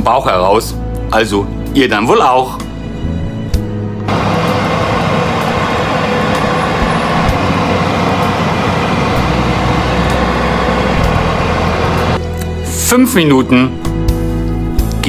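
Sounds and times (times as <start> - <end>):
oven convection fan running: 4.1 - 12.2.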